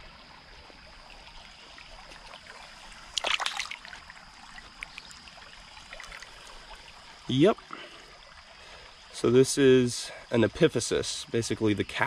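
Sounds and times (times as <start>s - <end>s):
creek water trickling: 0.0s - 12.0s
hand splashing in water: 3.1s - 4.0s.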